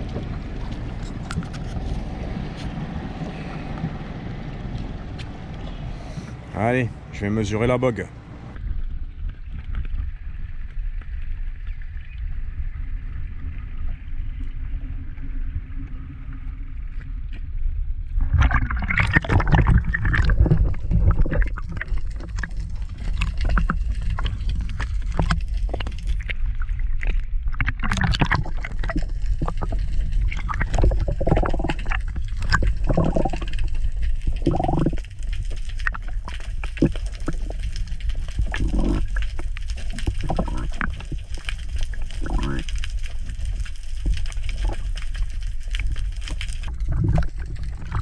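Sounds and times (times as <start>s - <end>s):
low rumble: 0.0s - 48.0s
water gurgling and sloshing: 0.0s - 48.0s
water splashing: 18.1s - 48.0s.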